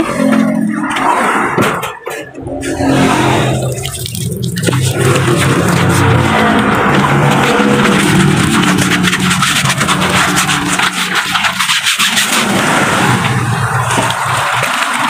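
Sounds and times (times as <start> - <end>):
hand scrubbing tub: 2.4 - 12.6
soapy water sloshing: 2.4 - 15.0.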